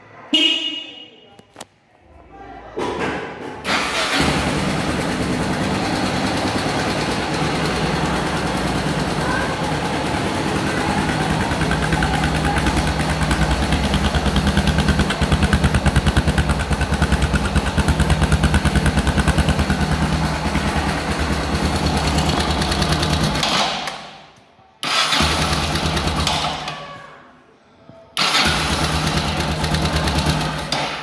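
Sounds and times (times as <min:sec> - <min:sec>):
motorcycle engine idling: 0:04.0 - 0:23.4, 0:25.2 - 0:26.6, 0:28.6 - 0:31.0.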